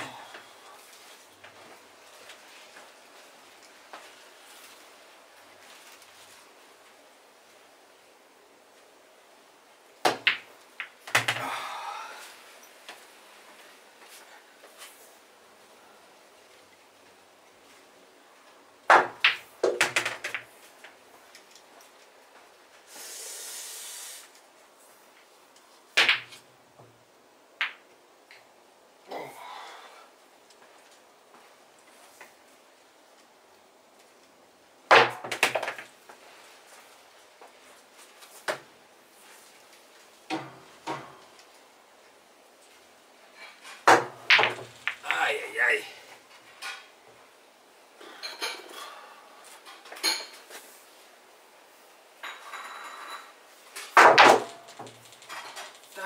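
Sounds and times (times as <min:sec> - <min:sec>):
billiard balls clacking: 0:10.0 - 0:11.5, 0:18.9 - 0:20.6, 0:26.0 - 0:26.4, 0:43.8 - 0:45.2
short hiss: 0:22.8 - 0:24.4.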